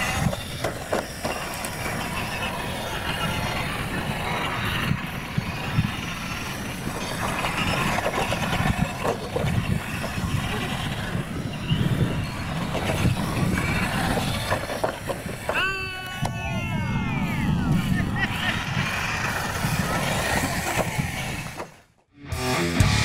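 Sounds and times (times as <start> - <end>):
toy trucks running rumble: 0.0 - 22.0.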